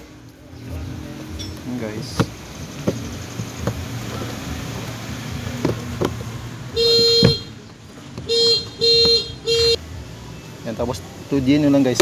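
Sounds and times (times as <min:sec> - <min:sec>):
car alarm chirp: 0:06.8 - 0:07.6, 0:08.2 - 0:09.8.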